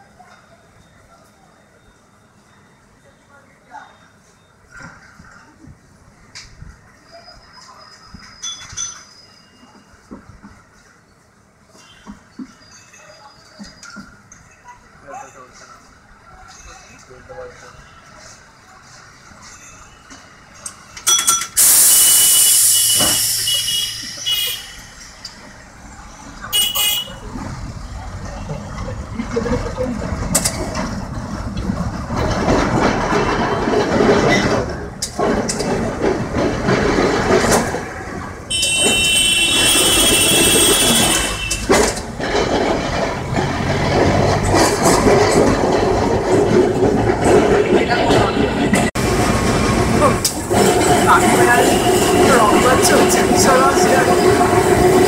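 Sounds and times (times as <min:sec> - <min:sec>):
tram rumbling on rails: 0:00.0 - 0:55.0
shrill horn blasts: 0:21.6 - 0:25.2, 0:26.5 - 0:27.3, 0:38.5 - 0:41.9, 0:50.5 - 0:55.0.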